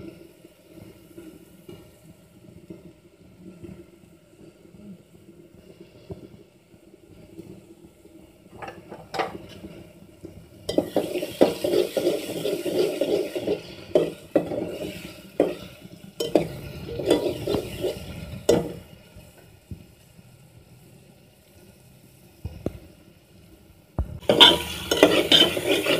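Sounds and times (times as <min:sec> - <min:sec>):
oil sizzling: 0:00.0 - 0:25.9
spoon stirring and scraping pot: 0:10.7 - 0:18.8, 0:24.2 - 0:25.9.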